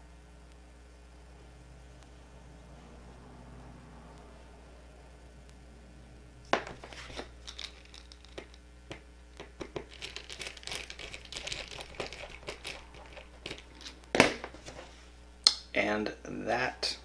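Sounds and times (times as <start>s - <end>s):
copper wire strands crinkling: 6.7s - 8.7s, 9.3s - 15.1s.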